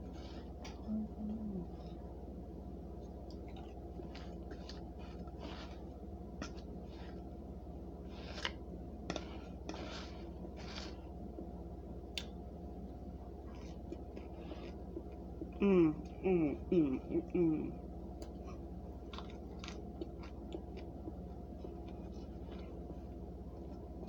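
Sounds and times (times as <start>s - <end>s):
person chewing crunchy food: 3.0s - 7.4s, 8.0s - 11.2s, 13.4s - 15.6s, 18.2s - 24.0s.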